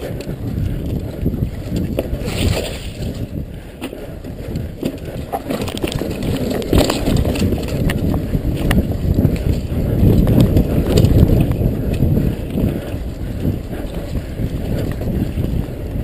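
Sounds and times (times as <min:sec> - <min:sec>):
bike rattling and knocking: 0:00.0 - 0:16.0
wind buffeting microphone: 0:00.0 - 0:16.0
tyres rumbling over dirt: 0:04.5 - 0:16.0.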